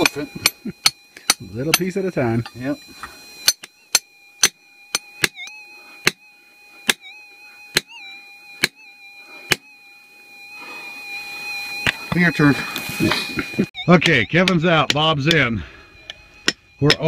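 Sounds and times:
hammer striking steel chisel: 0.0 - 2.6, 3.4 - 6.2, 14.0 - 15.4, 16.1 - 17.0
faint steady high tone: 0.0 - 17.0.

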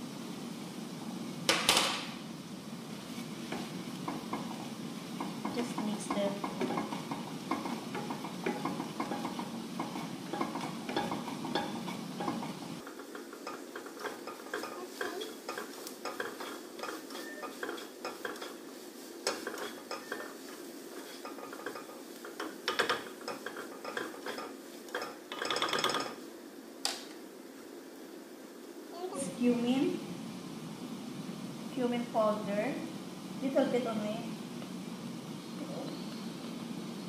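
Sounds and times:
low background hum: 0.0 - 37.0
vegetables sizzling: 0.0 - 37.0
spatula scraping frying pan: 3.0 - 26.2.

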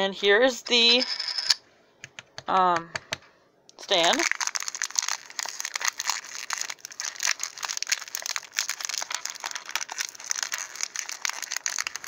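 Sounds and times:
plastic packaging crinkling: 3.8 - 12.0.

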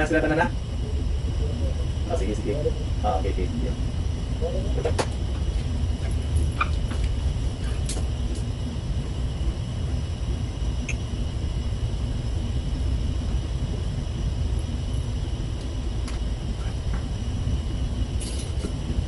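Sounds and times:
ship machinery rumble: 0.0 - 19.0.

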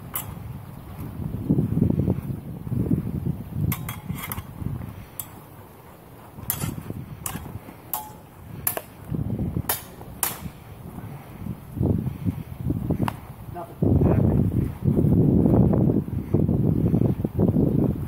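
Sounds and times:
wind rumble on microphone: 0.0 - 18.0
swords clashing: 3.7 - 4.5, 6.4 - 8.9, 9.7 - 10.6.

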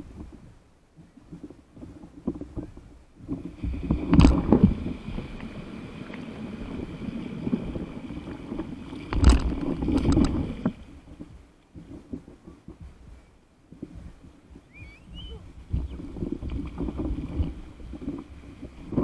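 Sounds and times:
whitewater rushing and splashing: 3.4 - 11.1.

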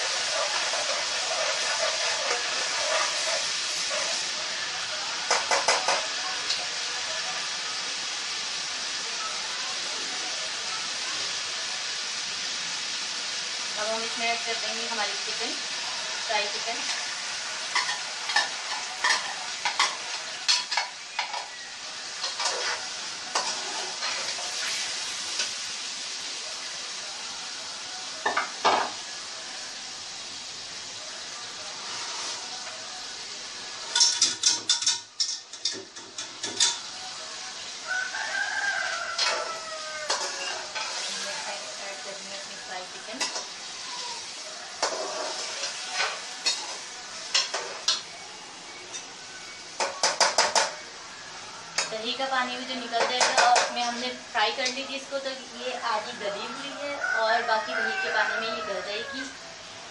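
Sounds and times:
metal spoon scraping pan: 0.0 - 4.4, 16.8 - 25.6, 39.0 - 41.7, 42.9 - 43.6, 44.8 - 48.0
chicken sizzling in pan: 0.0 - 59.9
knocks on a pan: 5.3 - 6.0, 49.8 - 50.8.

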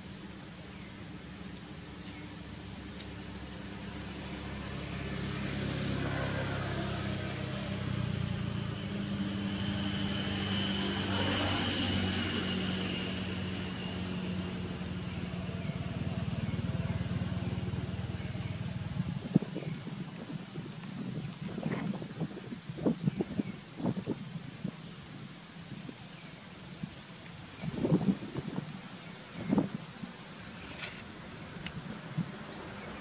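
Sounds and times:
motor engine running: 3.2 - 22.2.

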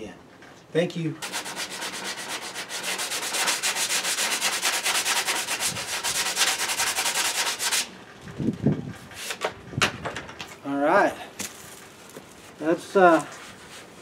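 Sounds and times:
hand sanding plastic: 1.2 - 7.9, 12.3 - 14.0.

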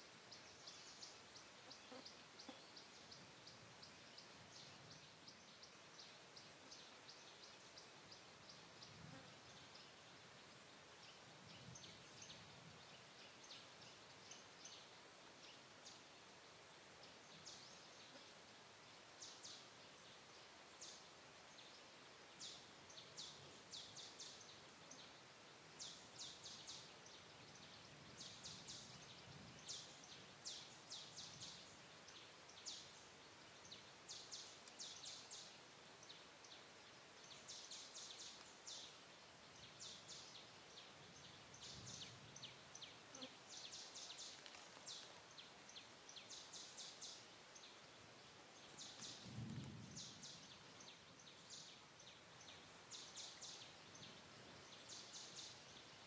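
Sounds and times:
outdoor background hiss: 0.0 - 56.0
faint high-pitched chirping: 19.2 - 56.0.

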